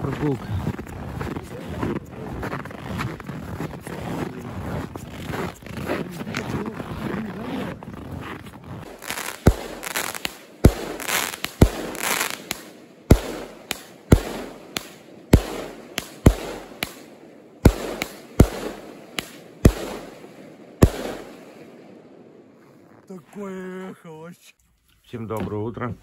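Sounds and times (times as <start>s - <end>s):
fireworks hissing and crackling: 8.3s - 21.6s
fireworks bangs: 8.8s - 22.4s.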